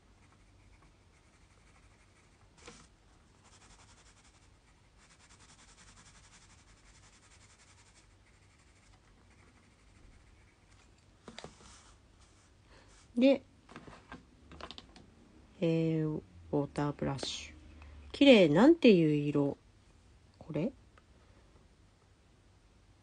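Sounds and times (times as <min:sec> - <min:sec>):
pencil scratching on paper: 0:00.1 - 0:10.8.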